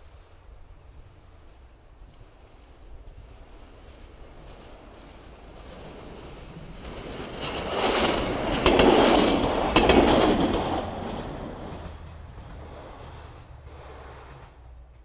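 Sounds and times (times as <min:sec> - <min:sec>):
diesel railcar passing: 0:00.0 - 0:15.0
wheels clacking over rail joint: 0:07.4 - 0:15.0.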